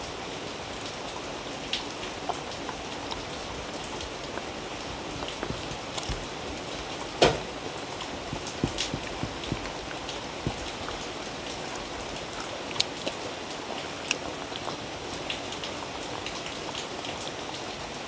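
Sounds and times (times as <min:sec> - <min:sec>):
steady hiss: 0:00.0 - 0:18.0
dog crunching and lapping: 0:01.7 - 0:16.9.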